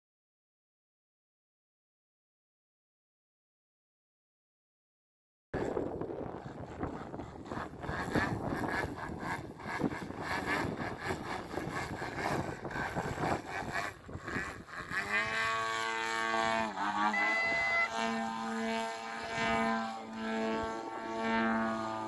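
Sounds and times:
model plane engine and propeller: 5.6s - 22.0s
wind on microphone: 5.6s - 22.0s.

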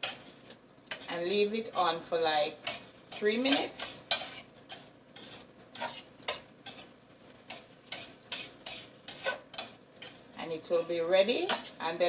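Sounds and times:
metal spoon clinking in frying pan: 2.5s - 12.0s.

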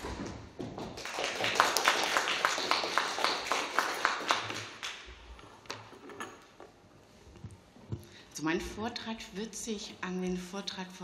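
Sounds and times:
audience applauding: 1.0s - 5.1s.

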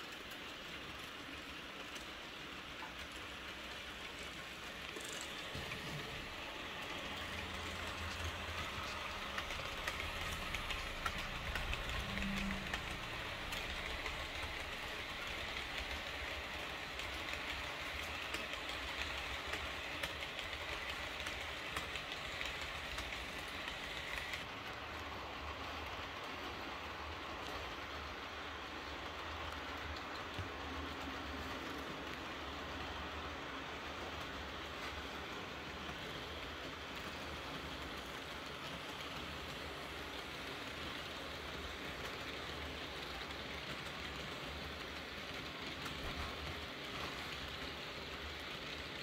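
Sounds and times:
model train rolling hiss: 0.0s - 49.0s
wheels ticking over rail joints: 0.0s - 49.0s.

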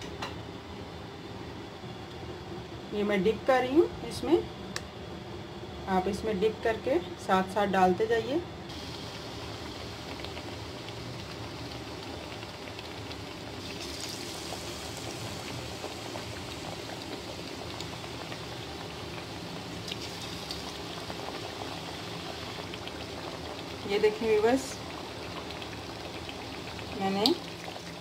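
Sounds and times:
oil sizzling and bubbling: 8.7s - 28.0s.

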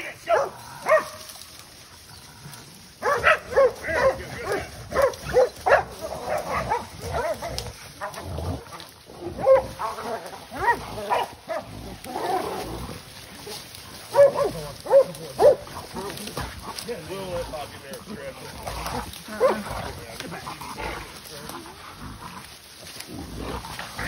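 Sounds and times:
dogs barking: 0.2s - 1.4s, 3.0s - 12.4s, 13.4s - 21.4s.

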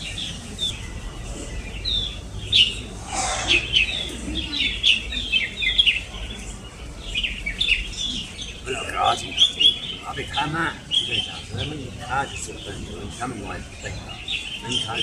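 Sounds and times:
birds chirping: 0.0s - 15.0s
brief noisy burst: 3.0s - 4.0s.

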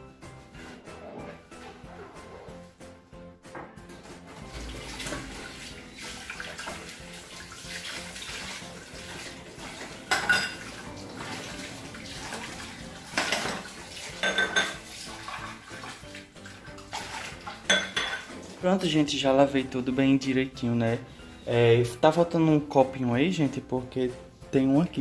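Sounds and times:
tap water running into sink: 4.0s - 19.0s
glasses and dishes clinking: 10.0s - 11.4s, 13.2s - 14.8s, 17.5s - 18.4s.

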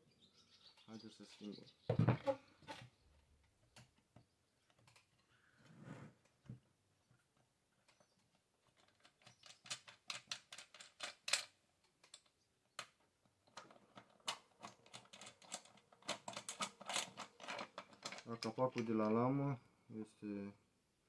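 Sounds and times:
small clicks and rattles: 7.0s - 19.3s.

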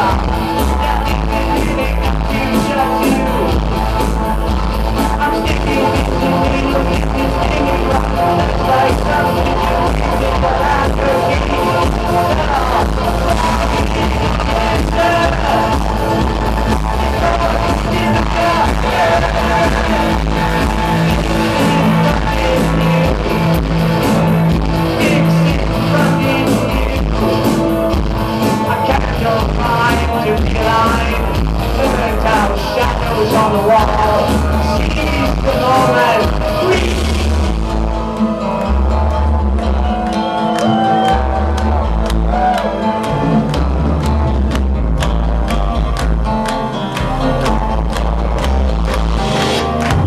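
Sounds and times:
man singing lead vocal: 0.0s - 38.4s
electronic band music: 0.0s - 50.0s.

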